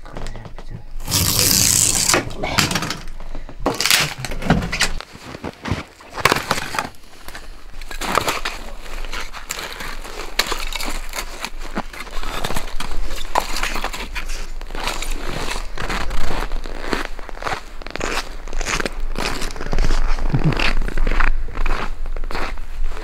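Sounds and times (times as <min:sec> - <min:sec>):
boots crunching in snow: 0:05.1 - 0:07.0.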